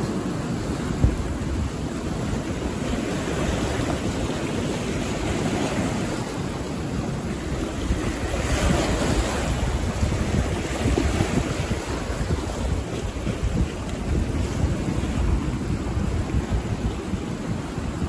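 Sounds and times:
sea waves washing ashore: 0.0s - 18.0s
wind buffeting microphone: 0.0s - 18.0s.

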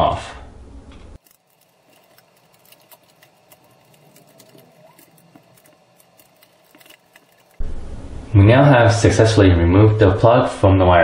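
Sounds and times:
screwdriver ticks and scrapes: 1.2s - 7.6s
wires slipping off screws: 1.2s - 7.6s.

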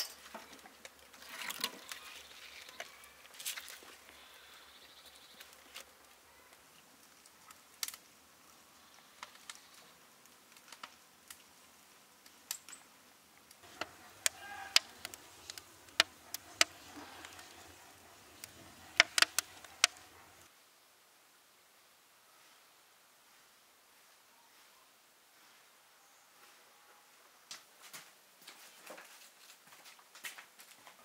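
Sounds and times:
wood fire crackling: 0.0s - 20.5s.

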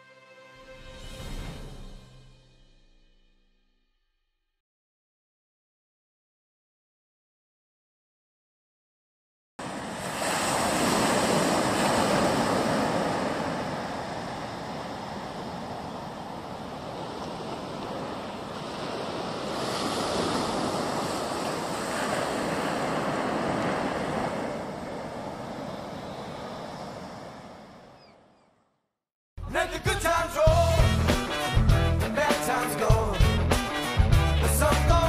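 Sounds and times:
sea waves on beach: 9.6s - 28.4s.

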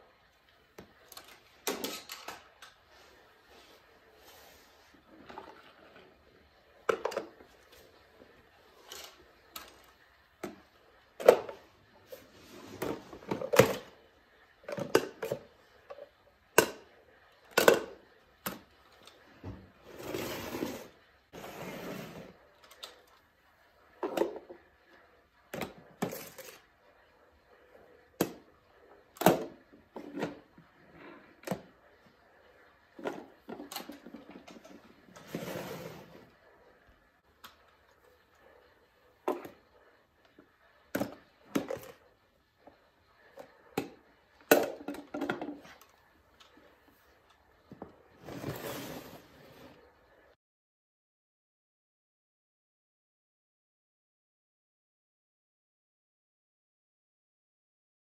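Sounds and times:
plastic toys clacking on tile floor: 0.8s - 2.8s, 8.6s - 11.7s, 25.5s - 26.7s.

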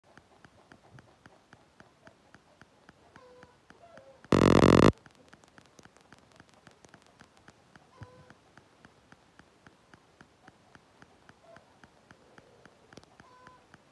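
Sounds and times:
faint regular ticking: 4.3s - 13.9s.

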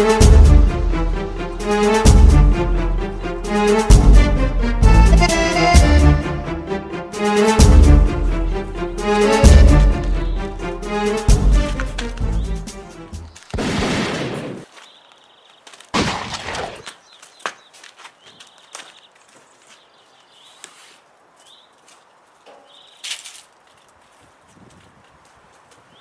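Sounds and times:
faint birds chirping: 8.4s - 13.6s, 14.6s - 15.9s, 16.8s - 26.0s
gunshots: 13.5s - 14.7s, 16.0s - 16.9s.

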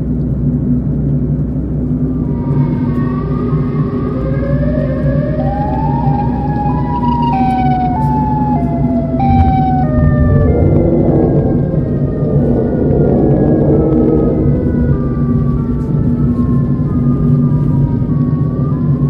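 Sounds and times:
car engine and road hum: 0.0s - 19.0s
siren-like wail: 1.6s - 19.0s.

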